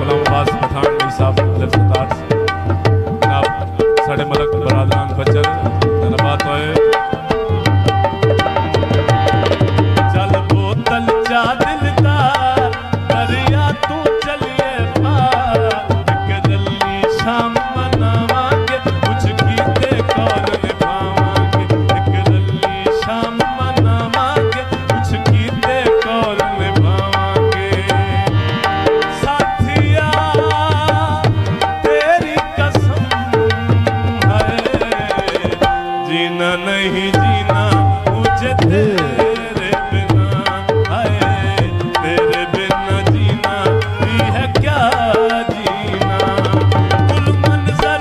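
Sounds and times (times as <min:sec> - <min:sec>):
held drone notes: 0:25.3 - 0:44.6
wavering melody line: 0:35.6 - 0:42.9.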